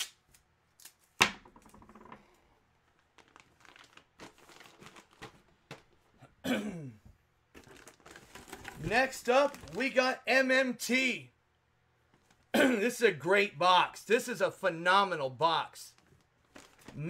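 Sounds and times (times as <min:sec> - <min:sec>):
plastic packaging crinkling: 0:02.8 - 0:06.0, 0:07.5 - 0:10.0, 0:15.9 - 0:17.0.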